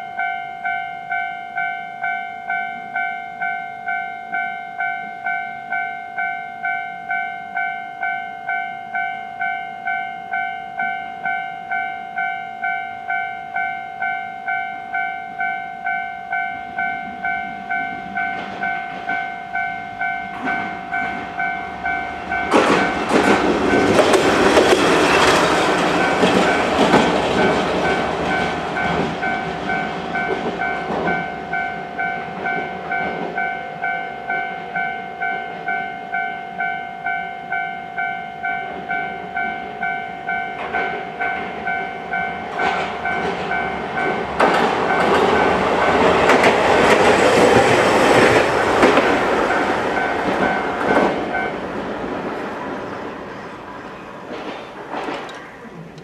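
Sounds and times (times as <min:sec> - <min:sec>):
level crossing warning bell ringing: 0:00.0 - 0:54.1
trams passing: 0:00.0 - 0:56.0.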